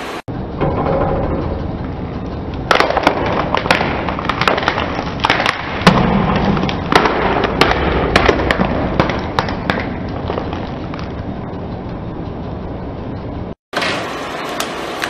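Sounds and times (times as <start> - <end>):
car rumbling: 0.3 - 13.6
box crushed with crackles and pops: 2.7 - 11.1.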